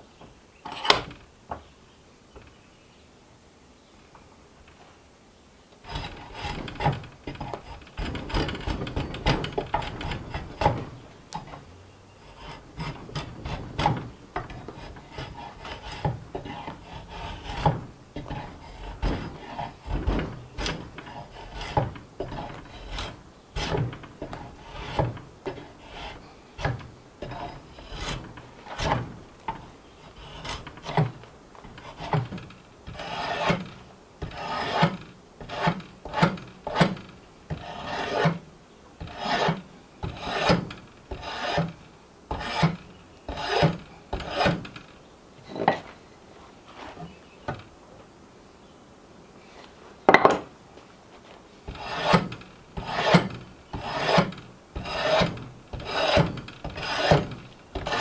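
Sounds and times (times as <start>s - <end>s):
hand rasp scraping wood: 5.8s - 38.4s, 39.0s - 44.8s, 51.7s - 58.0s.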